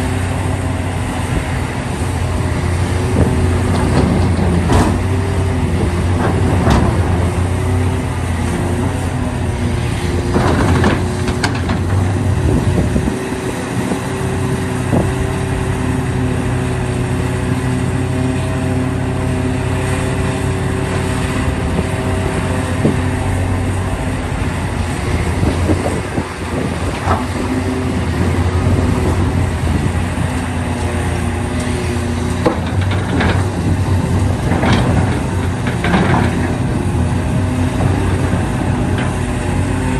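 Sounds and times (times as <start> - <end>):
excavator diesel engine: 0.0 - 39.9
digging clanks and knocks: 6.1 - 7.3, 10.1 - 12.3, 31.6 - 39.5.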